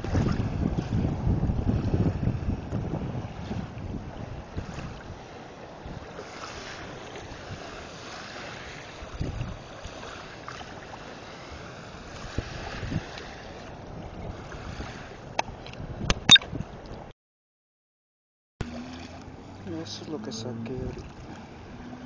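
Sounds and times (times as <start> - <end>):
wind rushing over microphone: 0.0 - 6.2, 8.9 - 9.8, 11.9 - 16.8
low rumbles of wind gusts: 0.0 - 17.1.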